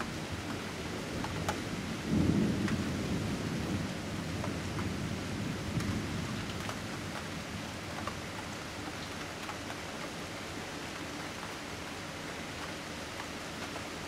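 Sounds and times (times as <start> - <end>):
steady rain: 0.0 - 14.0
raindrop ticks: 1.2 - 1.6, 2.5 - 2.9, 4.3 - 5.0, 5.6 - 11.7, 12.5 - 14.0
low thunder rumble: 1.7 - 7.7.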